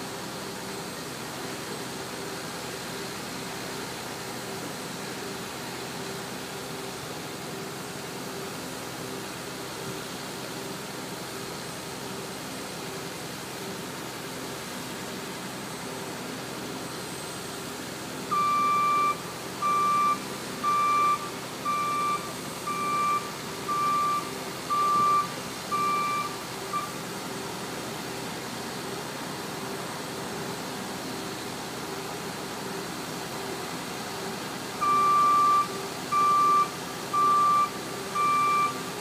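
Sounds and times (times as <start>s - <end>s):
vehicle reversing alarm beeping: 18.3s - 27.0s, 34.8s - 39.0s.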